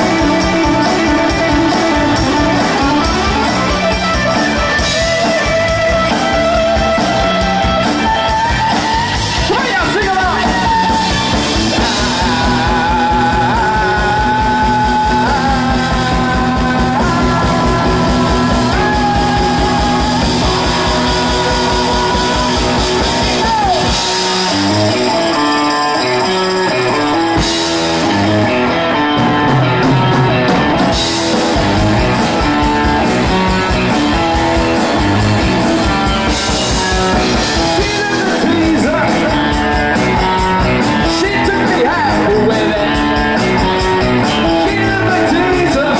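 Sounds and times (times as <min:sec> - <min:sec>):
rock and roll song: 0:00.0 - 0:45.9.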